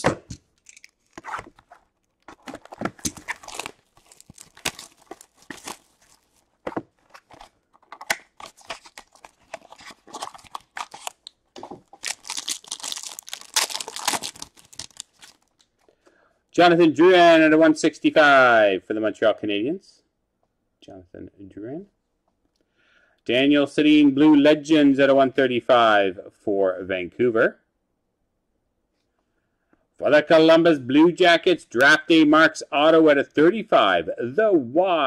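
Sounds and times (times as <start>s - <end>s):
shiny wrapper tearing and crinkling: 0.6s - 15.8s.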